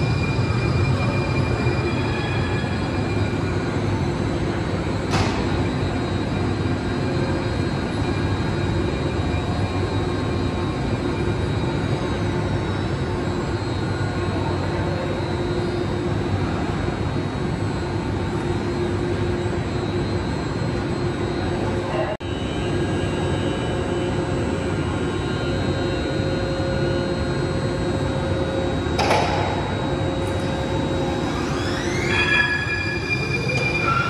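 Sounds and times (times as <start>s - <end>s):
train motors humming and rumbling: 0.0s - 34.0s
faint high whine sliding down: 28.0s - 34.0s.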